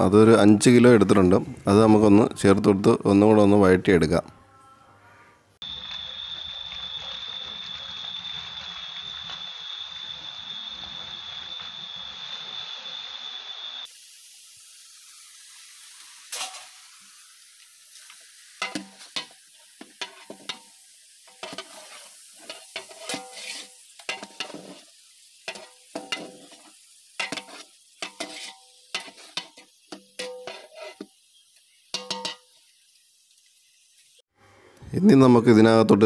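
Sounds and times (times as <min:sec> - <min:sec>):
faint sizzle: 0:00.0 - 0:35.8
metal spatula scraping cooking pot: 0:18.6 - 0:32.6.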